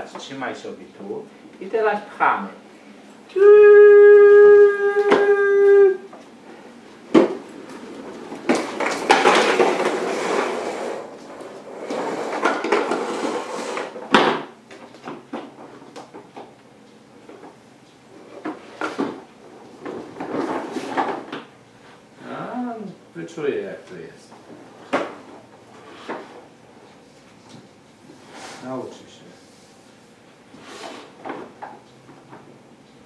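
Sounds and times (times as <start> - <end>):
plastic knocks and clatters: 7.1 - 10.5
toy wagon rolling on wooden floor: 7.1 - 14.2, 18.2 - 21.4.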